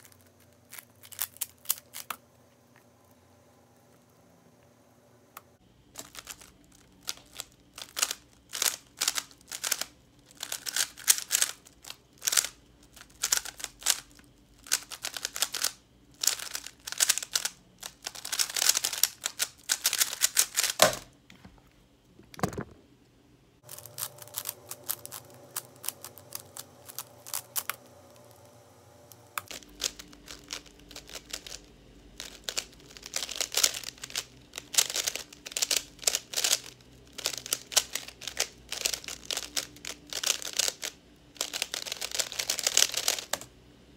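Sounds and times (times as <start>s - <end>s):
plastic speed cube clicking: 6.0s - 20.9s, 24.0s - 28.2s, 29.4s - 31.6s, 32.2s - 43.5s.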